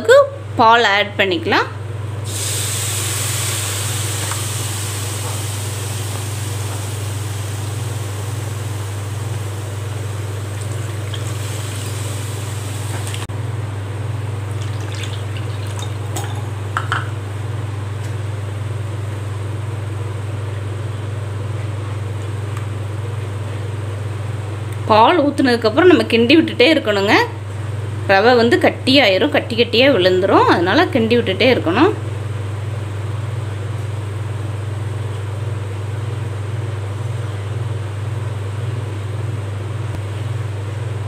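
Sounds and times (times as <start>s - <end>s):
steady low hum: 0.0s - 41.0s
milk pouring into hot pan: 6.9s - 12.9s, 14.6s - 16.1s.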